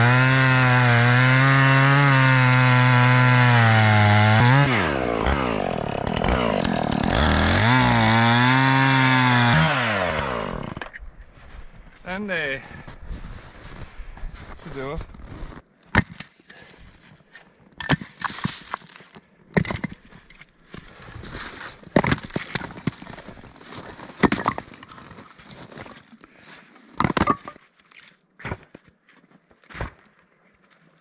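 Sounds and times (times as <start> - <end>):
footsteps crunching in snow: 11.2 - 15.6, 20.8 - 21.9, 22.8 - 24.2.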